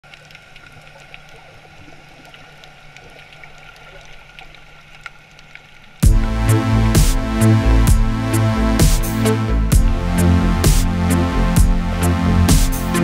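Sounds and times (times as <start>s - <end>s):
electronic music with heavy beat: 6.0s - 13.0s.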